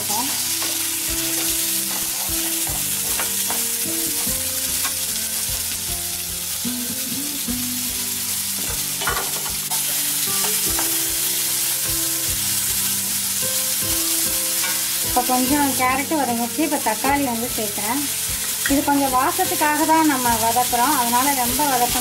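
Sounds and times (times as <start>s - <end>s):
vegetables sizzling in hot oil: 0.0s - 22.0s
spatula scraping and tapping pan: 0.3s - 5.6s, 8.6s - 11.6s, 14.5s - 15.0s.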